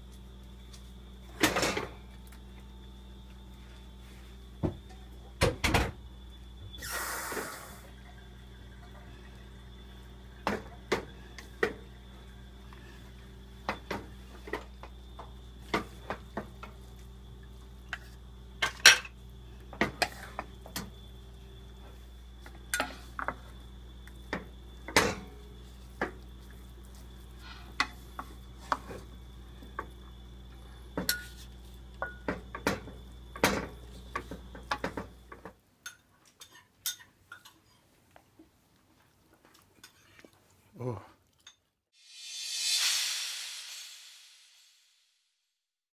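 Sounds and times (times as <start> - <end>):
low hum: 42.0 - 45.2.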